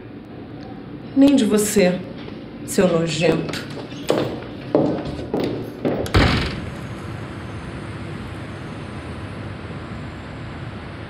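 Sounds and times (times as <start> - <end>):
city traffic hum: 0.0 - 11.0
door slamming: 3.5 - 7.0.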